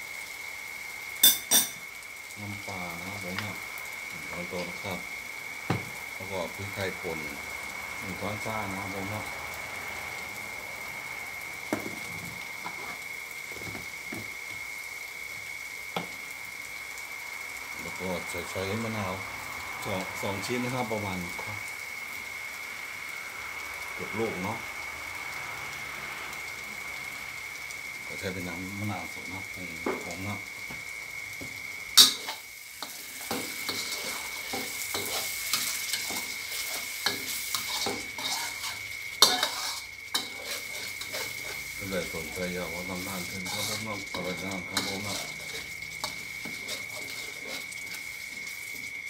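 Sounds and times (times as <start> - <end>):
food sizzling in a wok: 0.0 - 49.0
metal spatula scraping a wok: 32.0 - 48.6.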